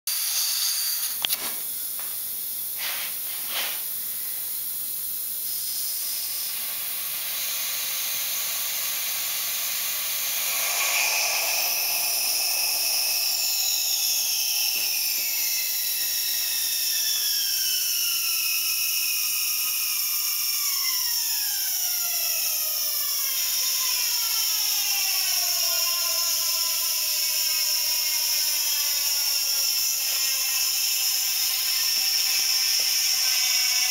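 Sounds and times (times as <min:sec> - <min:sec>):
compressed air hissing: 0:00.3 - 0:20.4.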